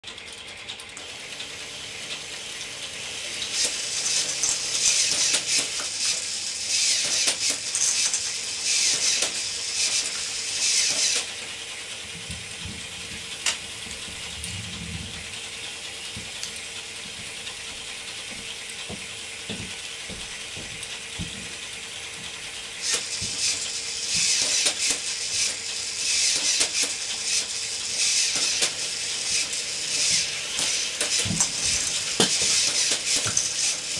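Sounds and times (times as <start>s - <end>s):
motor hum: 0.0s - 33.9s
plastic gears clattering and ratcheting: 3.4s - 11.4s, 22.8s - 33.9s.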